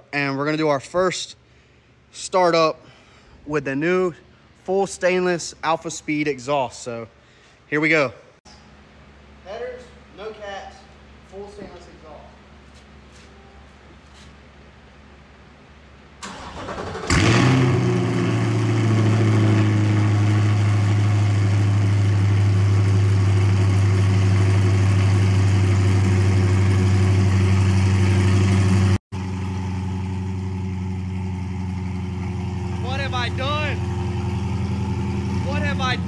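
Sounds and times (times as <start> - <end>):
car engine cranking: 16.2 - 19.5, 27.6 - 36.0
loud car engine idling: 17.1 - 36.0.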